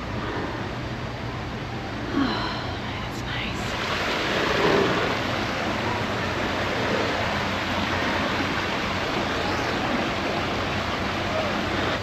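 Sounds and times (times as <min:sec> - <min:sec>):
stream splashing over rocks: 0:03.7 - 0:12.0.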